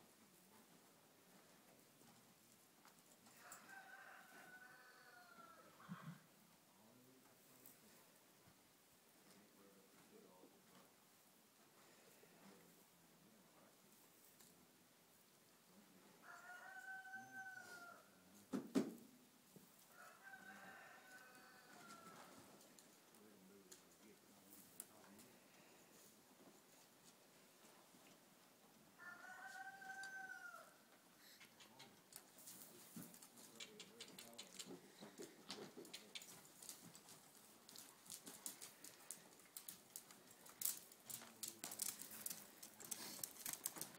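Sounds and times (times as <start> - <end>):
rooster crowing: 3.3 - 5.8, 16.2 - 18.1, 19.9 - 22.4, 29.0 - 30.8.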